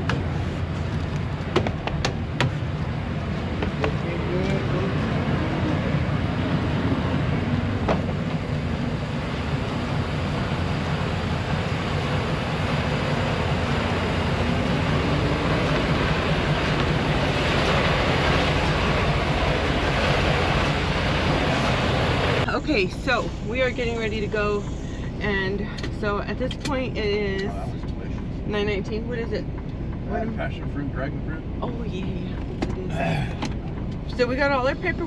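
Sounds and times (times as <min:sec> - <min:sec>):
diesel truck engine idling: 0:00.0 - 0:35.0
rushing noise: 0:02.2 - 0:25.2.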